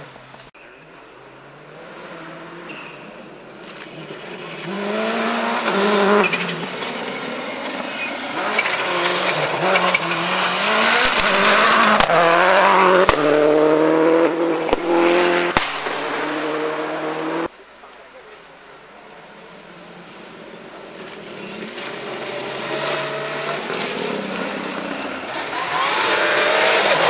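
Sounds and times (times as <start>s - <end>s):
rally car engine revving: 1.4s - 17.5s, 19.8s - 27.0s
sharp cracks: 15.5s - 16.1s.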